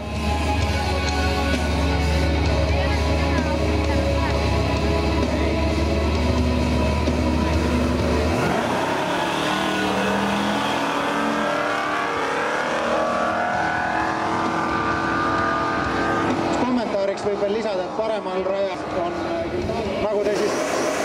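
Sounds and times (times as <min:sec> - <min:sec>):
cars accelerating hard: 0:05.5 - 0:21.0.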